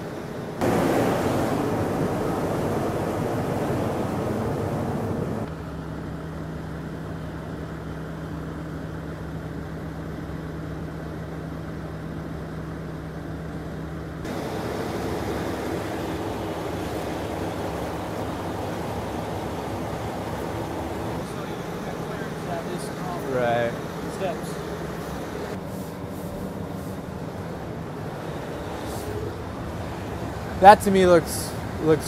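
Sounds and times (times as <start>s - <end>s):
crane engine running: 0.0s - 32.0s
low steady hum: 0.0s - 32.0s
loud rushing noise: 0.6s - 5.5s, 14.3s - 32.0s.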